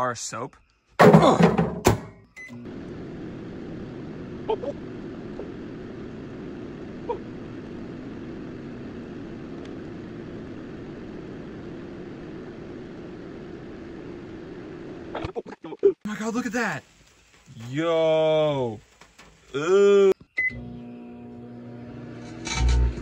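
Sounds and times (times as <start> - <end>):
microwave oven humming: 1.8 - 15.2, 20.4 - 23.0.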